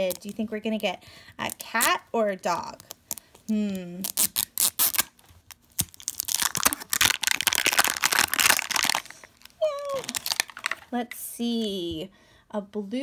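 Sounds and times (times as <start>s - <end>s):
plastic wrapper crinkling: 0.0s - 0.4s, 4.0s - 11.0s.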